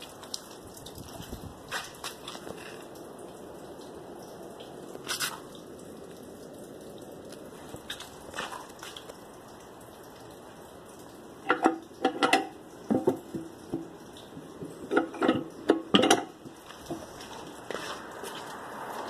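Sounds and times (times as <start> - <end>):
toilet flush handle clicking: 11.5 - 13.8, 14.6 - 16.3.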